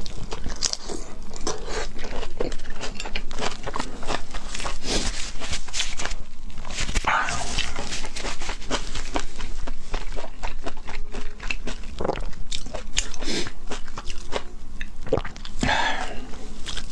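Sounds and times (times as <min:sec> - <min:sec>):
wet chewing clicks and smacks: 0:08.7 - 0:15.6.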